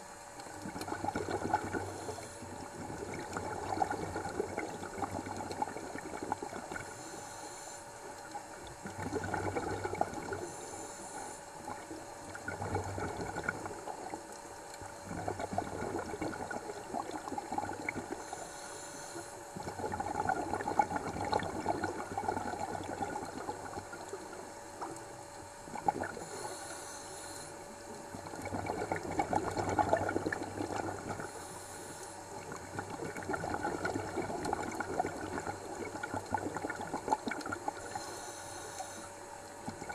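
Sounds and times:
exhaled air bubbling: 0.0 - 39.9
regulator inhale hiss: 1.5 - 2.7, 6.8 - 8.4, 10.2 - 11.9, 17.8 - 19.6, 26.0 - 28.0, 31.0 - 32.5, 37.8 - 39.3.

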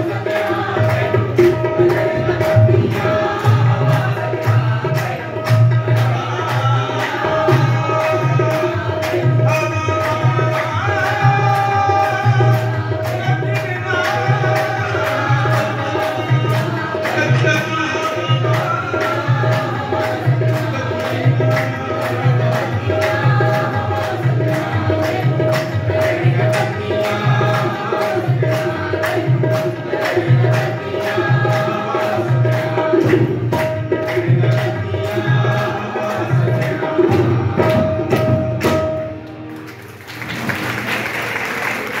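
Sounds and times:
group singing: 0.0 - 38.9
tabla playing: 0.0 - 42.0
hand-clapping: 37.6 - 42.0.

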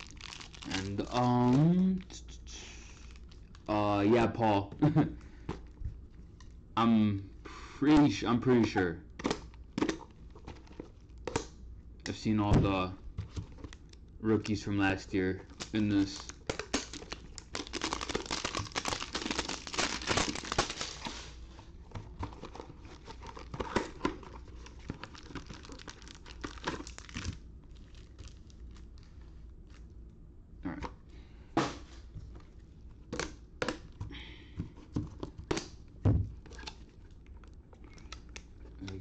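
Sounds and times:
plastic wrapping tearing and crinkling: 0.0 - 2.1, 15.5 - 21.4, 22.7 - 29.8.

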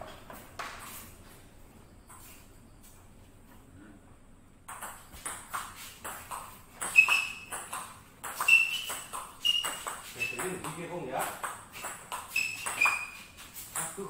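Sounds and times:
table tennis ball hits: 4.7 - 14.0
short high squeaks: 6.8 - 10.5, 11.7 - 13.8.

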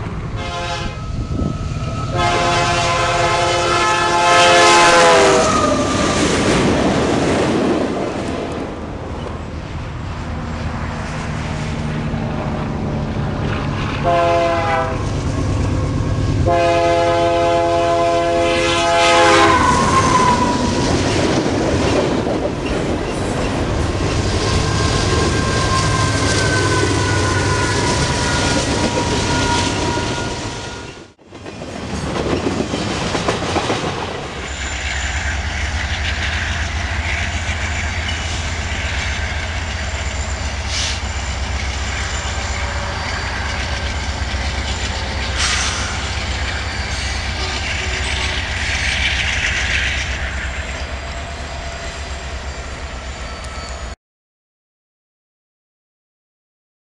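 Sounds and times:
freight train rumbling and clattering: 0.0 - 53.7
locomotive air horn blast: 0.3 - 1.5, 2.1 - 6.1, 14.0 - 15.2, 16.4 - 20.6, 24.5 - 31.0, 46.9 - 48.5
thin high squeal: 24.2 - 31.0, 34.4 - 54.0.

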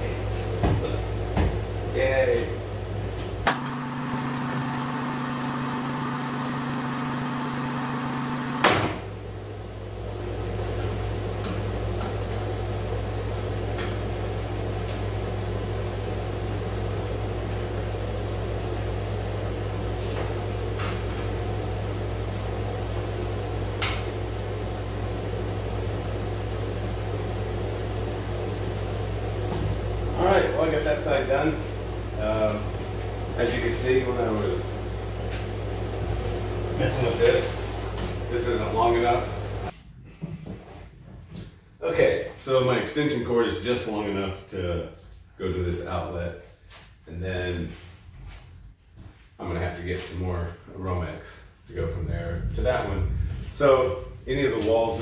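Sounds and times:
air conditioner humming: 0.0 - 55.0.

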